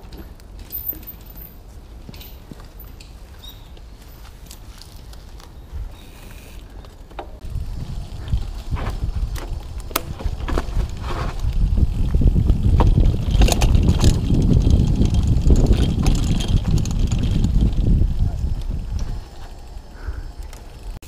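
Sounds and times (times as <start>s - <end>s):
bike rattling over rough trail: 0.0s - 21.0s
wind rumble on microphone: 7.4s - 21.0s.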